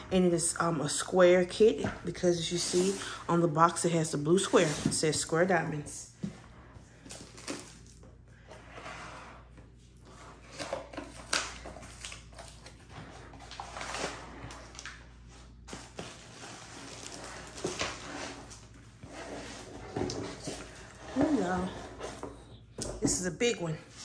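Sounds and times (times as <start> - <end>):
cardboard box scraping and sliding: 16.4 - 22.4.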